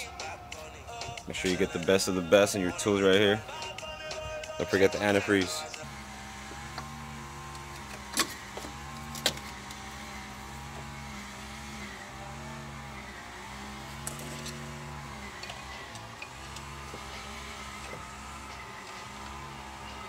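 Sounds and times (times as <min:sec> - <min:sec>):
low engine hum: 0:05.6 - 0:20.0.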